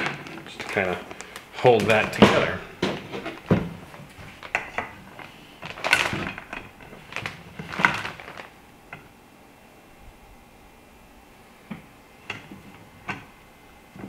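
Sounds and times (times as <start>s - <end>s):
knocks and rustling of handled rods: 0.0s - 9.1s, 11.7s - 14.0s.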